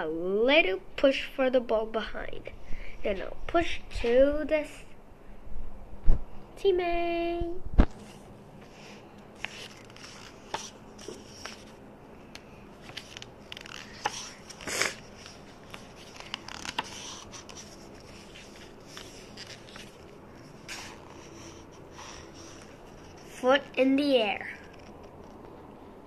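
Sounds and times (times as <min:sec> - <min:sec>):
book pages rustling: 0:07.8 - 0:25.7.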